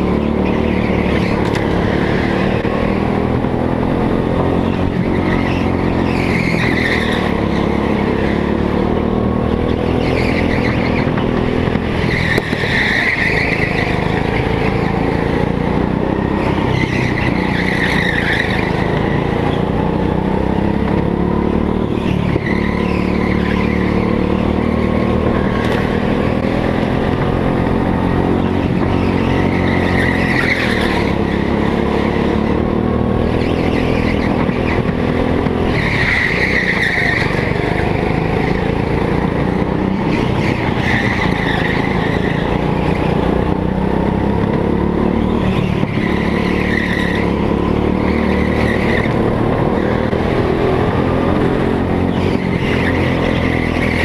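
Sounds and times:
go-kart engine revving: 0:00.0 - 0:54.0
tyres squealing: 0:11.8 - 0:15.4, 0:28.0 - 0:38.9, 0:39.8 - 0:43.3.

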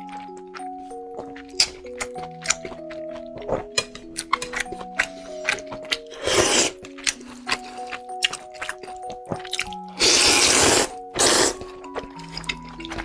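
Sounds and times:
background music of held notes: 0:00.0 - 0:13.0
person slurping noodles: 0:05.2 - 0:08.0, 0:10.0 - 0:12.5.

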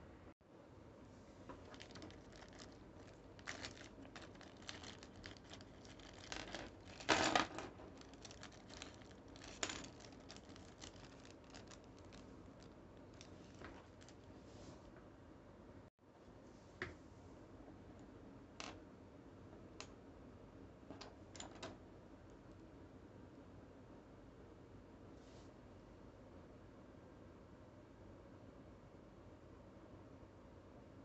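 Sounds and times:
plastic bag crinkling: 0:01.5 - 0:14.3.

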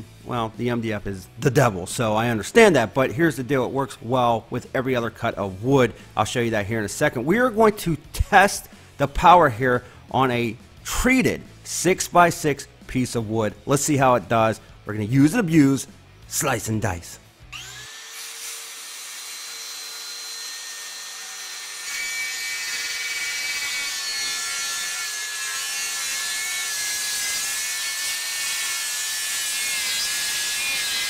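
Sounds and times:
circular saw cutting wood: 0:17.5 - 0:31.0.

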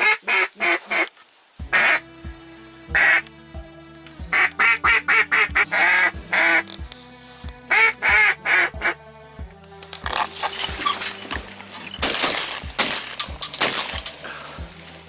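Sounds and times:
duck quacking: 0:00.0 - 0:01.1, 0:01.7 - 0:02.1, 0:02.9 - 0:03.3, 0:04.3 - 0:09.0
background music with soft beat: 0:01.3 - 0:15.0.

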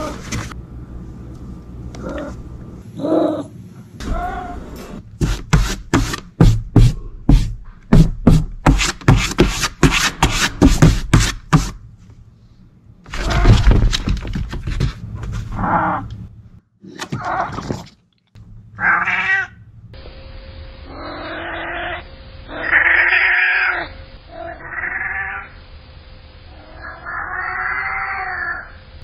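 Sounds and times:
cat scratching cardboard: 0:05.2 - 0:11.8
cat meowing: 0:18.8 - 0:19.6, 0:20.9 - 0:25.5, 0:26.6 - 0:28.7.

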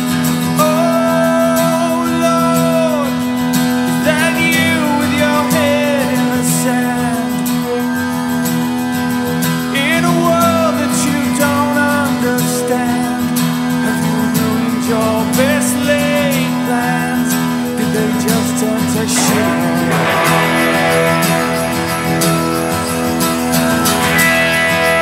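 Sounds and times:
strummed acoustic guitar: 0:00.0 - 0:25.0
man singing: 0:00.5 - 0:25.0
low held note: 0:19.2 - 0:23.4.

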